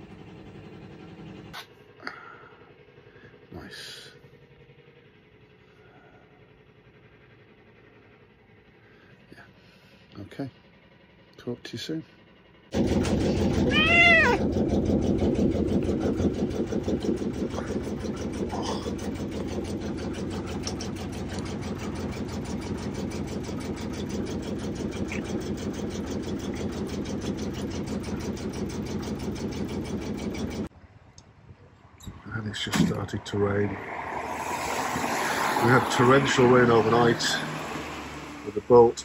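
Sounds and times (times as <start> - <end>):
cat meowing: 13.7 - 14.4
cat purring: 13.7 - 14.4.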